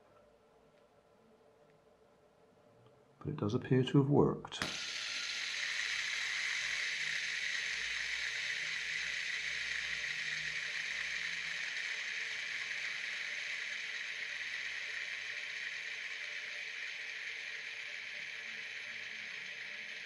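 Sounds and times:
fidget spinner bearing whirring: 4.6 - 20.0.

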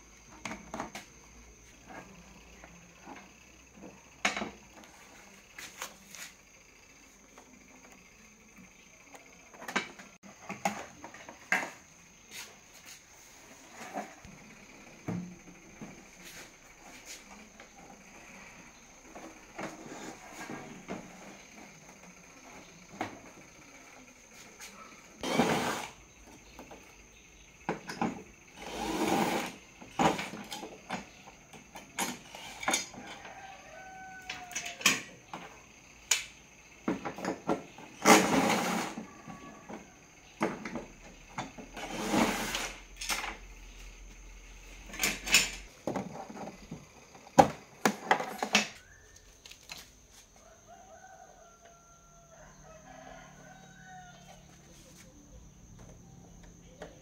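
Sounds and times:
rooster crowing: 32.8 - 35.1, 38.6 - 40.4, 50.4 - 54.9.

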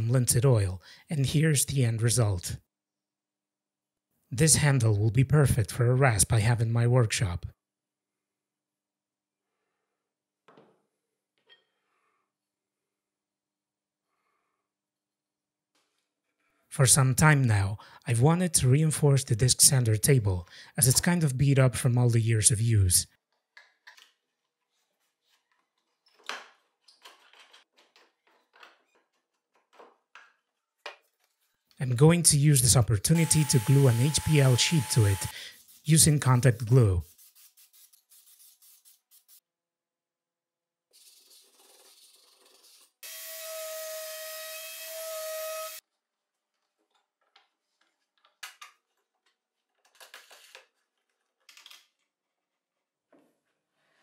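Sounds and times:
wooden parts clicking and knocking: 26.1 - 31.1
power tool running: 33.2 - 35.4, 43.0 - 45.8
hand rubbing laminate sheet: 33.9 - 39.4.

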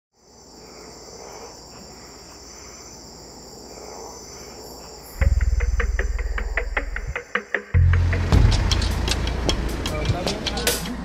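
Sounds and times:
insect chorus drone: 0.2 - 10.0
music with deep bass beat: 5.2 - 11.0.

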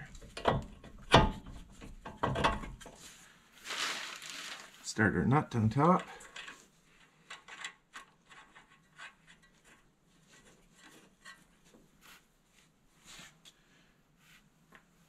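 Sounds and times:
nut threading clicks and scrapes: 5.8 - 11.6.

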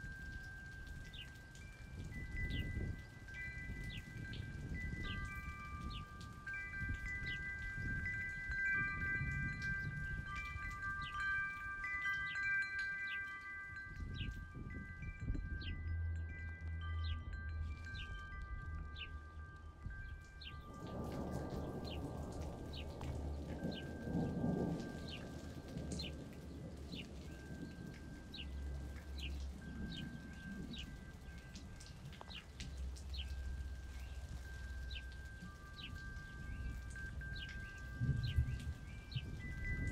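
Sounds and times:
chimes ringing: 0.0 - 39.9
rain-like hiss: 0.0 - 39.9.

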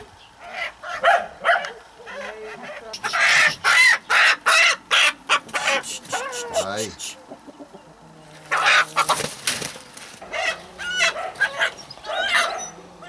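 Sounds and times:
chickens clucking: 0.0 - 13.0
hen squawking harshly: 2.1 - 7.2, 8.5 - 9.3.

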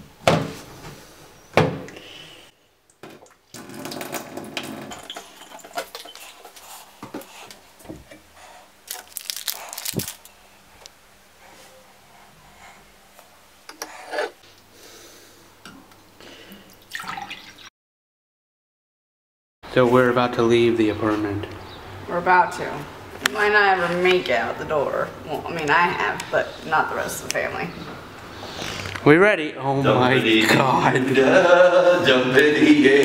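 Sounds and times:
water poured into a glass: 16.8 - 17.7.

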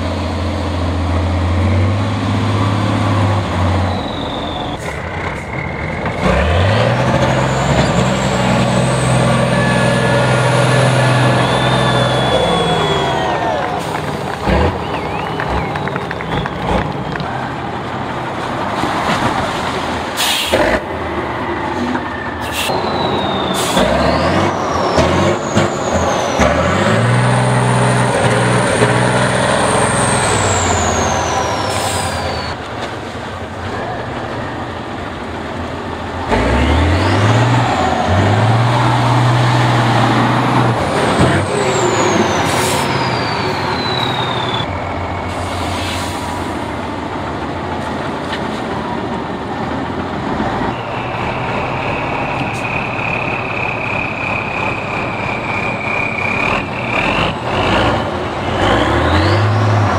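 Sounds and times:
high engine whine: 0.0 - 18.5, 20.6 - 59.9
truck diesel engine revving: 0.0 - 59.9
short sharp hisses: 20.2 - 20.6.

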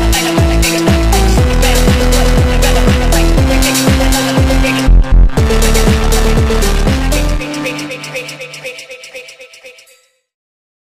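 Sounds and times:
pitch-dropping kick drums: 0.0 - 7.5
steady synth notes: 0.0 - 9.1
ticking hi-hats: 0.1 - 8.7
heavy bass hits: 1.1 - 7.4.

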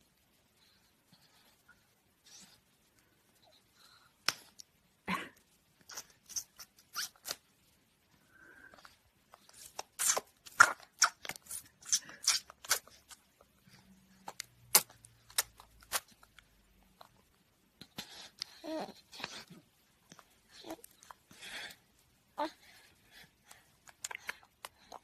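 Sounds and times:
baby sucking toes: 5.8 - 7.4, 9.3 - 21.7, 23.4 - 25.0.

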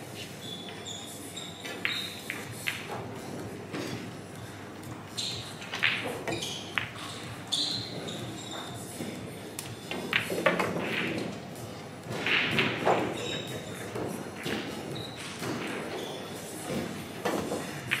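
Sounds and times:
pool balls clicking: 1.6 - 4.2, 5.4 - 7.3, 7.9 - 18.0
cue striking ball: 12.1 - 13.2.

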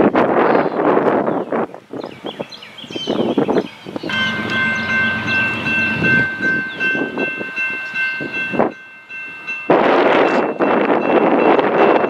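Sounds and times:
train rumble: 3.9 - 12.0
locomotive air horn chord: 4.1 - 7.1.

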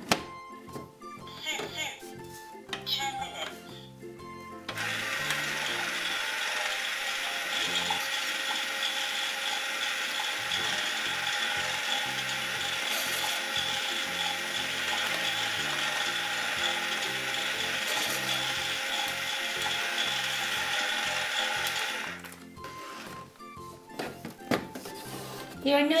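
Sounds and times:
toy microwave motor whirring: 4.7 - 23.3.

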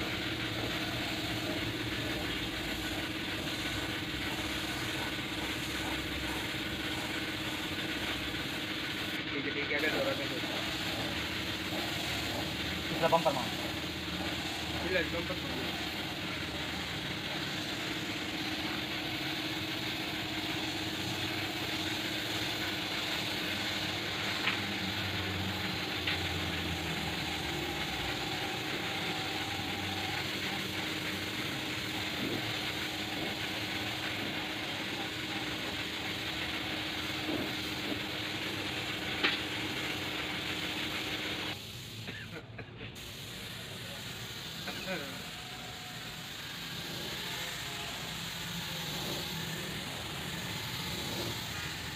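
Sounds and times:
spray gun hissing: 0.0 - 42.2, 43.0 - 51.9.

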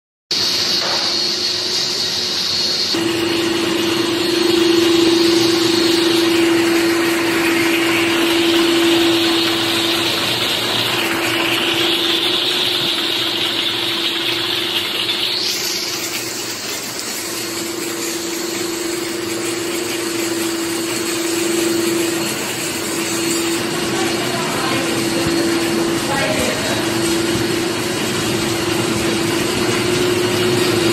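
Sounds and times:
hiss: 0.3 - 3.0
machine drone: 0.4 - 30.9
motor hum: 2.9 - 30.9.

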